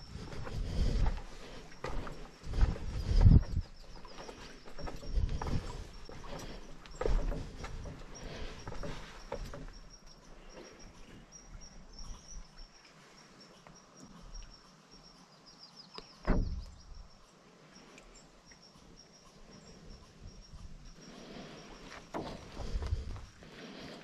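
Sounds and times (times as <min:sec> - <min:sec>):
footsteps on a trail: 0:00.0 - 0:09.9, 0:20.3 - 0:24.0
loud thump: 0:16.3 - 0:16.7.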